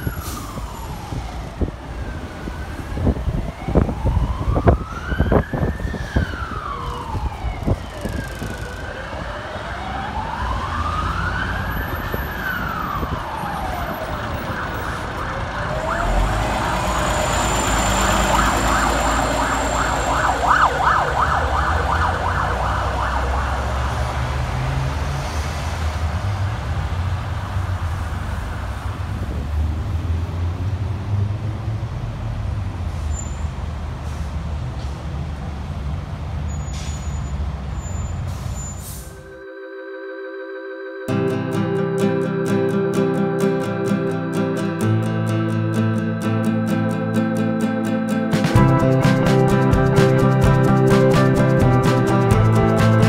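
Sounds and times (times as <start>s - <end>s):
emergency siren wailing: 0.0s - 29.4s, 38.8s - 53.0s
passing traffic: 0.0s - 39.5s, 40.9s - 53.0s
bus diesel engine revving: 14.8s - 33.1s.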